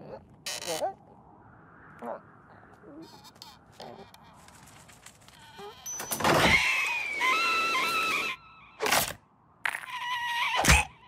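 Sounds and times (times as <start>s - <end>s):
cartoon bird screaming: 9.7s - 11.0s.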